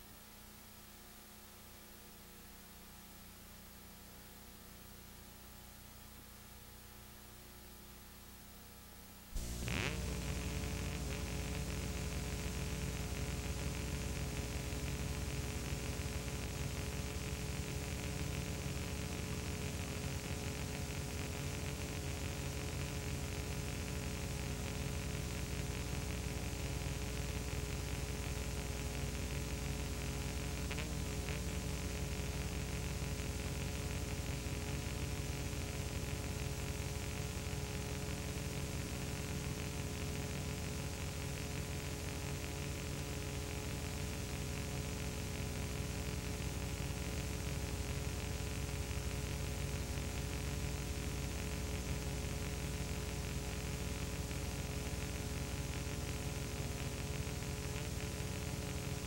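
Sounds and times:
electrical mains hum: 0:00.0 - 0:59.0
steady hiss: 0:09.3 - 0:59.0.

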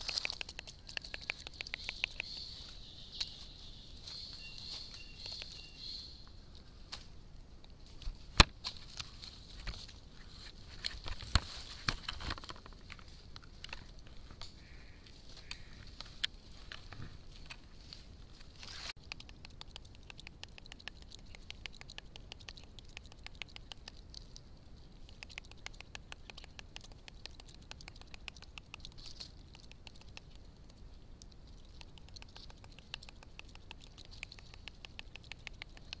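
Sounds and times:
fast even clicking: 0:00.0 - 0:02.5, 0:19.0 - 0:24.2, 0:25.0 - 0:36.0.

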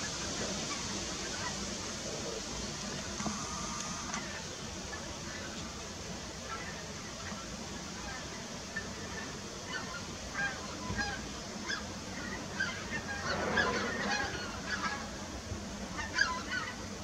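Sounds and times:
geese honking: 0:06.4 - 0:17.0.

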